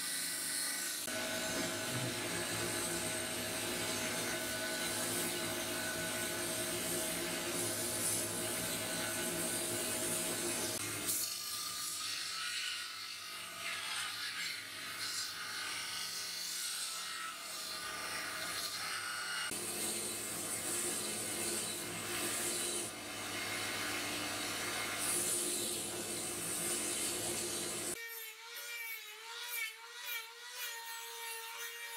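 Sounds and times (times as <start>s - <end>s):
belt grinder motor hum: 1.0s - 11.1s.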